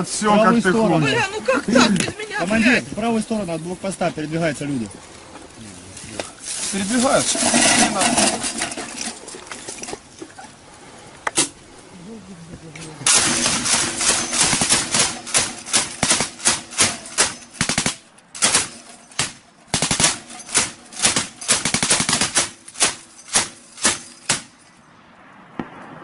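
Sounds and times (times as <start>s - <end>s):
machine-gun fire: 13.1s - 24.5s.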